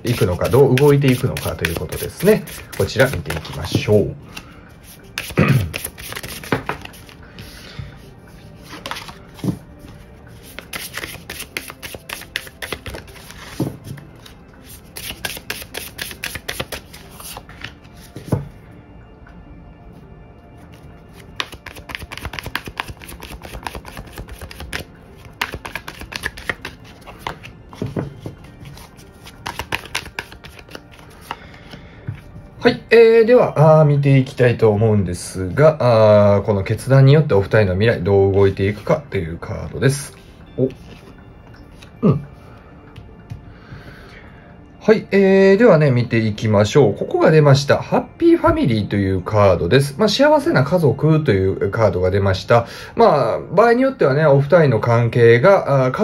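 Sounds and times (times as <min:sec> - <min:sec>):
cards being shuffled: 0:00.1 - 0:07.2, 0:08.6 - 0:18.4, 0:20.7 - 0:31.4.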